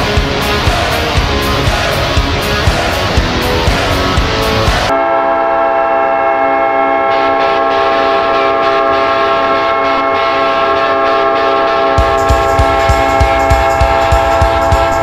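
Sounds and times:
song drum beat: 0.0 - 4.9, 12.0 - 15.0
goal horn long chord: 0.0 - 15.0.

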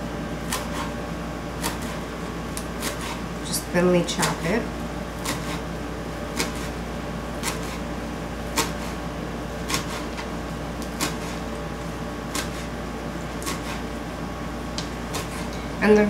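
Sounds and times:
steady low hum: 0.0 - 16.0
knife chopping on cutting board: 1.6 - 2.0, 2.8 - 3.2, 5.2 - 5.7, 6.3 - 6.8, 7.4 - 7.8, 8.5 - 9.0, 9.6 - 10.2, 11.0 - 11.4, 12.3 - 12.8, 13.4 - 13.9.

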